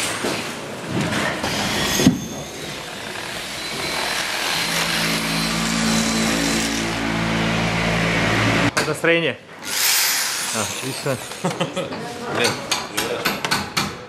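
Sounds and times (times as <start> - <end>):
workshop noise: 0.0 - 14.0
power tool motor running: 1.4 - 8.7, 9.6 - 11.5.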